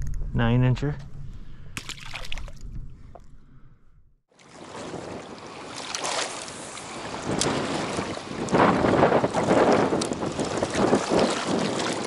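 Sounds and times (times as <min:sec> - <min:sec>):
wind buffeting microphone: 0:06.8 - 0:12.0.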